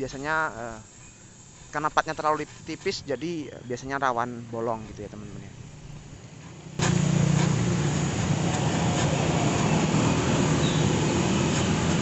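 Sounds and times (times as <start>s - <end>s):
welding torch rushing: 5.6s - 12.0s.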